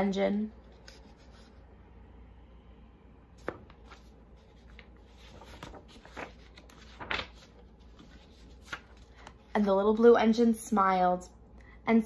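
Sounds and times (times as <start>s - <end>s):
book handling noises: 0.5s - 1.6s, 3.4s - 9.5s.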